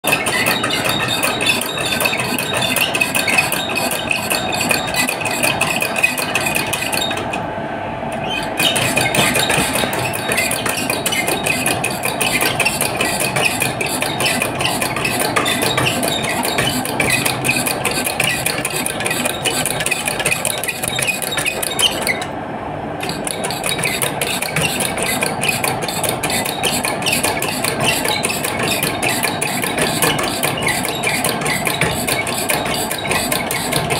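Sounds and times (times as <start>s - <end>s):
machinery metallic clatter: 0.0s - 7.5s, 8.1s - 22.4s, 23.0s - 33.9s.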